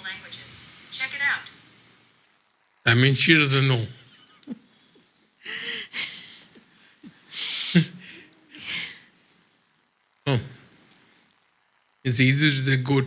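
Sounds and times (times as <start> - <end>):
voiced chuckle: 3.9 - 9.0
breathy hissing laughter: 3.9 - 9.3.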